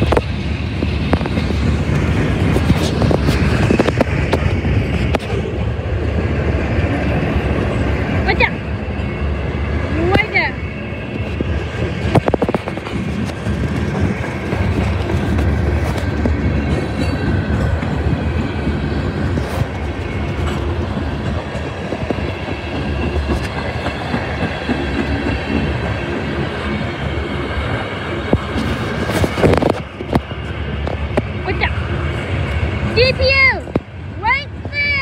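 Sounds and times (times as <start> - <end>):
train wheels rumbling on rails: 0.0 - 35.0
sharp clicks and clanks: 11.4 - 18.5.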